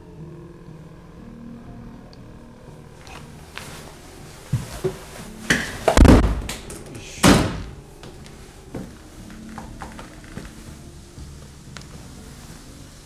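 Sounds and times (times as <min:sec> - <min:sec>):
door banging: 0:05.5 - 0:07.9.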